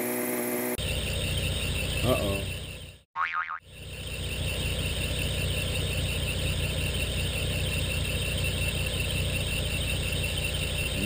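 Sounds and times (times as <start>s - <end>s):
high-pitched squeal: 0.0s - 3.0s
car engine idling: 0.8s - 3.0s, 3.6s - 11.0s.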